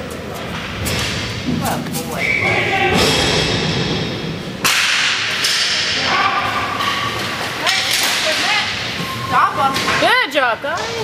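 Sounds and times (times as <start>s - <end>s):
inline hockey play: 0.0s - 11.0s
distant shouts: 2.2s - 3.2s, 6.0s - 6.8s
sharp crack: 4.6s - 6.1s.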